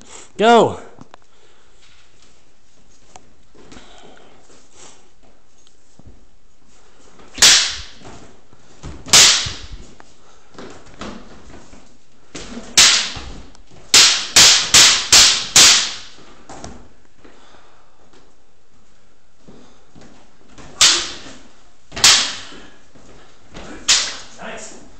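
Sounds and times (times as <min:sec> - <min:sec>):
wooden practice swords clacking: 0:07.4 - 0:08.0, 0:09.1 - 0:09.8, 0:12.6 - 0:16.2, 0:20.6 - 0:22.6, 0:23.6 - 0:24.4.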